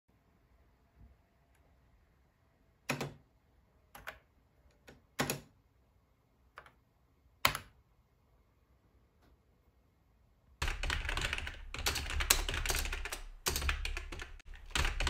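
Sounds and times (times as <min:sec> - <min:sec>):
computer keyboard keystrokes: 0:02.9 - 0:03.2, 0:04.0 - 0:05.5, 0:07.4 - 0:07.8, 0:10.6 - 0:15.0.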